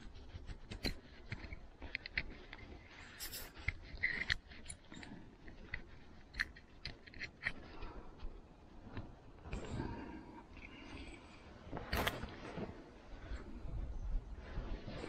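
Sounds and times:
scraping rustle: 0:00.0 - 0:10.1
small parts clicking and tapping: 0:00.0 - 0:12.3.

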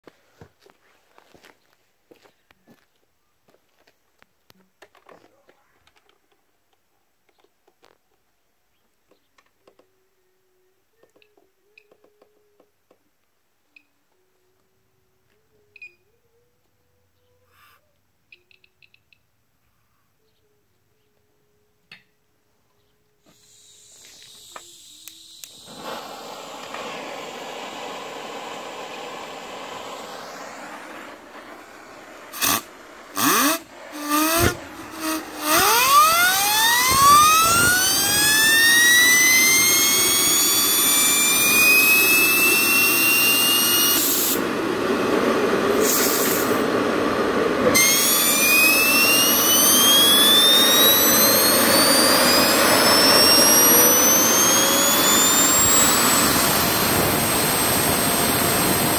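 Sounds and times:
rising hiss: 0:23.2 - 0:58.9
turbine engine whine: 0:23.3 - 0:58.9
loud ignition bursts: 0:23.4 - 0:58.9.

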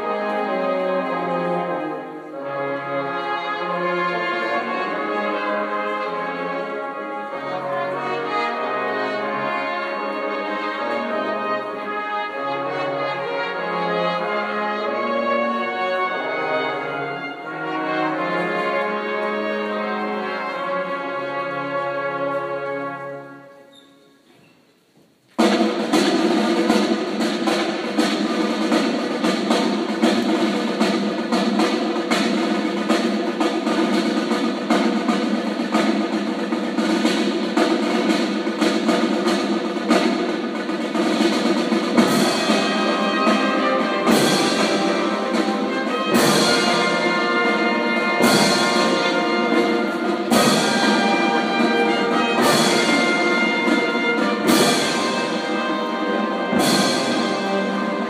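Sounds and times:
brass instruments holding chords: 0:00.0 - 0:23.6, 0:41.9 - 0:58.0
fast snare drumming: 0:25.4 - 0:58.0.

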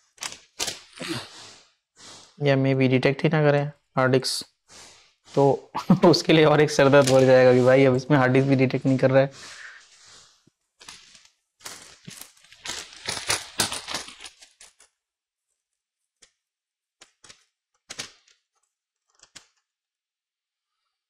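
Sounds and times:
laptop parts clicking and rustling: 0:00.0 - 0:00.9, 0:06.9 - 0:07.5, 0:10.8 - 0:15.0, 0:16.1 - 0:19.8.

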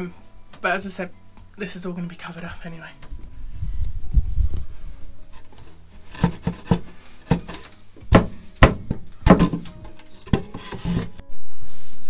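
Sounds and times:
wooden floor panels knocking: 0:05.6 - 0:11.1.

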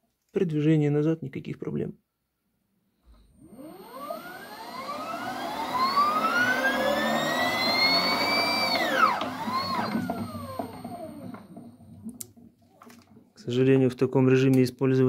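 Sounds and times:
electric motor whine: 0:03.4 - 0:12.1.

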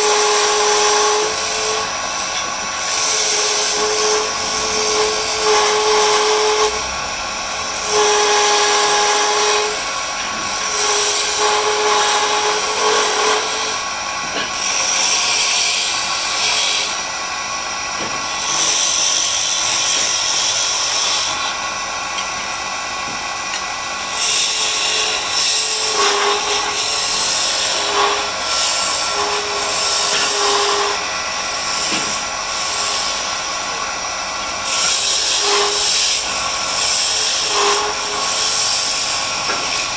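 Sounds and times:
wood lathe running: 0:00.0 - 0:39.9
chisel scraping wood on lathe: 0:07.7 - 0:17.0, 0:24.2 - 0:33.8, 0:34.6 - 0:39.9.

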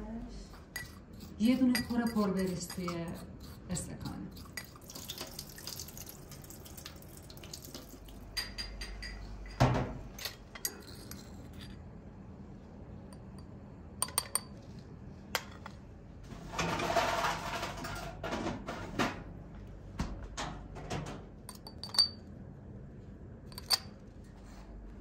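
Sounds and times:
water running in a steel sink: 0:03.7 - 0:08.4
tea glass clinks: 0:08.4 - 0:09.6, 0:21.5 - 0:22.2.

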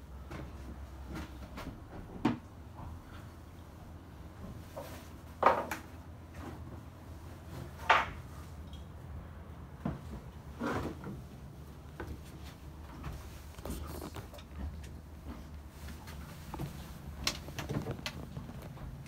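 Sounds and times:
clunks and knocks in boat cabin: 0:00.2 - 0:03.2, 0:09.8 - 0:13.4.

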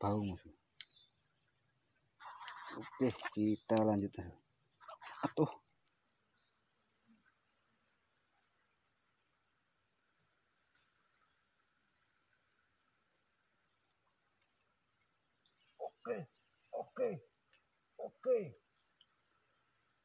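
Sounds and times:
forest insects shrilling: 0:00.0 - 0:07.9, 0:15.2 - 0:20.0.

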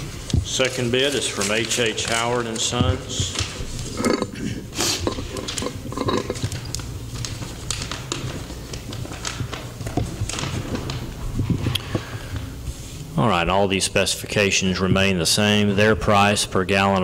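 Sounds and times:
paper rustling: 0:00.0 - 0:13.1.

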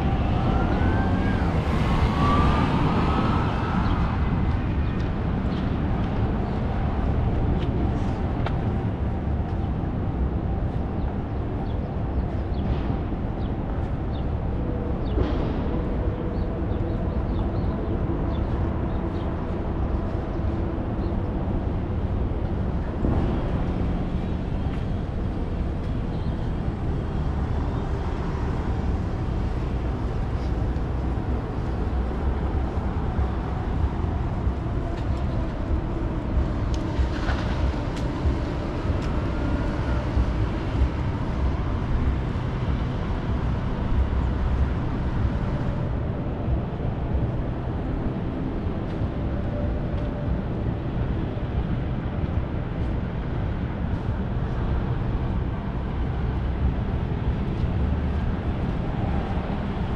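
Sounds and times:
faint rising whine: 0:00.0 - 0:09.4
traffic rumble: 0:00.0 - 0:59.9.

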